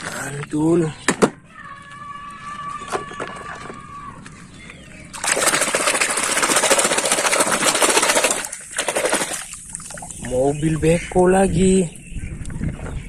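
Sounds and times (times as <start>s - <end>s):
water splashing in a basin: 5.1s - 10.4s.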